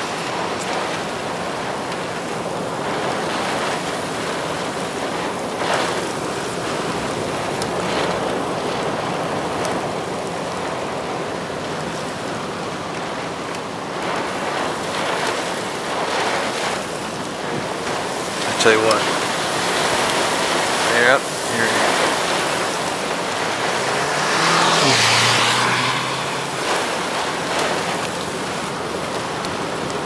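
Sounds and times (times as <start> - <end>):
strong rushing wind: 13.8 - 30.0.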